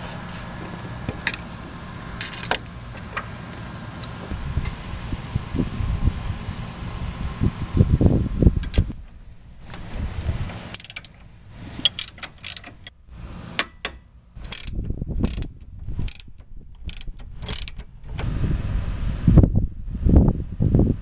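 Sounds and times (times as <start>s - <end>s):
ratcheting wrench clicking: 8.6s - 9.0s, 10.5s - 12.9s, 13.6s - 18.2s.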